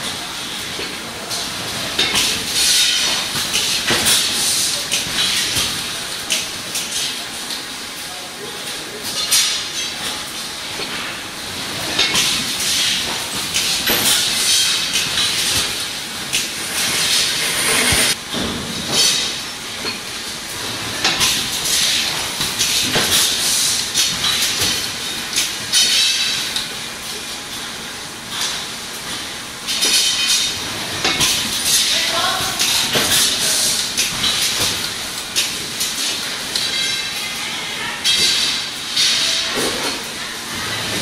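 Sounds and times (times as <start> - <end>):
machine clatter: 0.0 - 7.2, 9.1 - 26.7.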